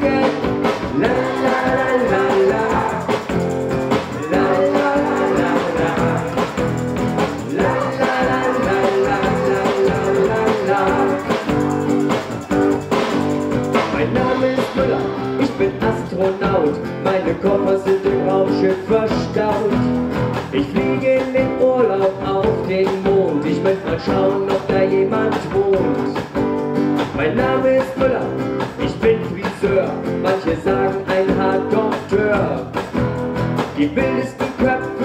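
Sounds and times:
person singing: 0.0 - 12.4, 13.8 - 19.8, 20.6 - 26.2, 33.8 - 35.0
acoustic bass guitar: 0.0 - 35.0
drum kit beat: 0.0 - 35.0
strummed acoustic guitar: 0.0 - 35.0.

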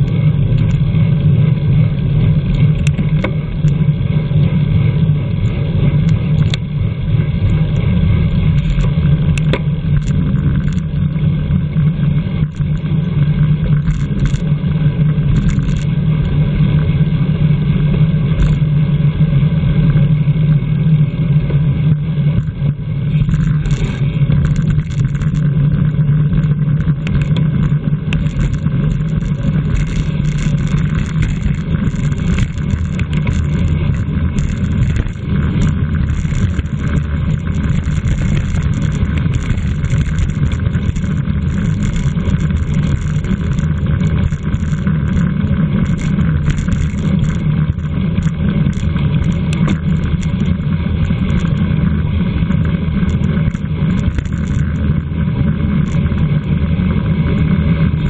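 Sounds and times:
low rumble: 0.0 - 58.0
wind rushing over microphone: 22.3 - 58.0.

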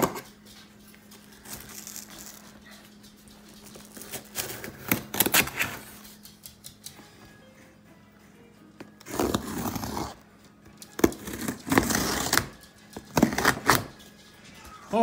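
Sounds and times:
knife scraping through packing tape: 3.9 - 6.0, 9.0 - 10.2, 11.0 - 13.9.

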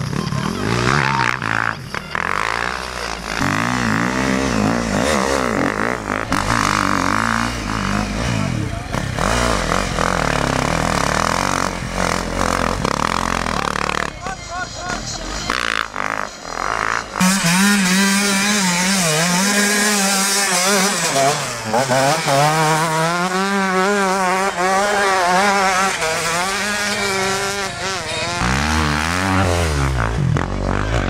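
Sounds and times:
lower-pitched engine: 0.0 - 31.0
motocross bike engine revving: 0.0 - 31.0.

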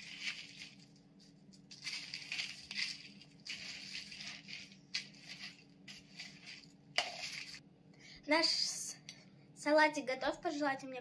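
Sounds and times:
spoon stirring croutons: 0.0 - 7.6.

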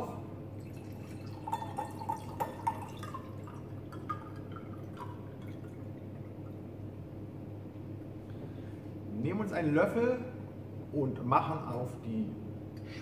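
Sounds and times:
juice trickling into glass: 0.6 - 6.9.

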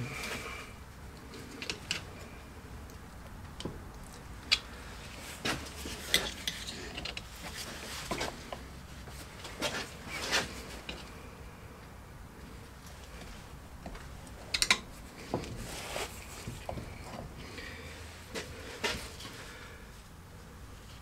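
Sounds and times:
metal tools clinking and scraping: 5.8 - 7.2.

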